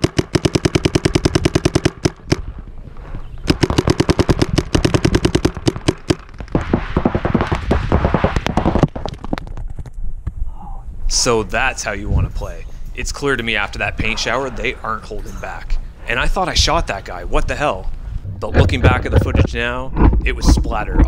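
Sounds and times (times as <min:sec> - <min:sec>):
paintball marker firing: 0:00.0 - 0:02.5, 0:03.4 - 0:09.4
paintballs hitting bunker: 0:00.0 - 0:02.5, 0:03.3 - 0:10.4.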